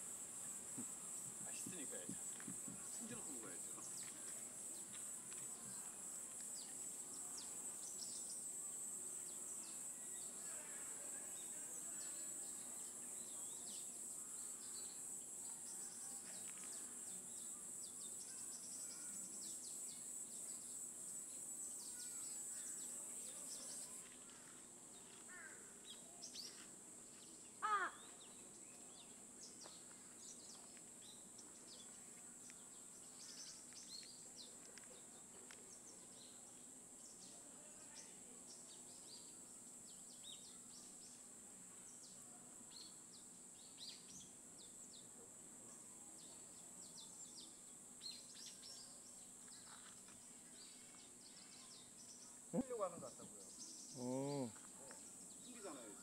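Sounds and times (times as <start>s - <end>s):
high insect drone: 0.0s - 56.0s
bird call falling in pitch: 27.6s - 28.0s.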